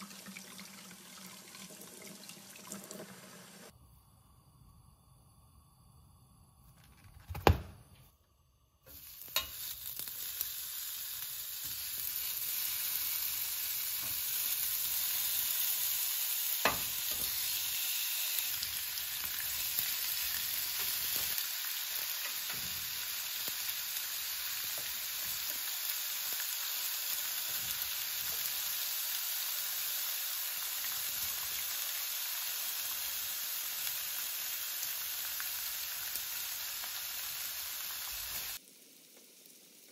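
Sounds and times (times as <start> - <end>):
food sizzling in a frying pan: 8.8 - 39.9.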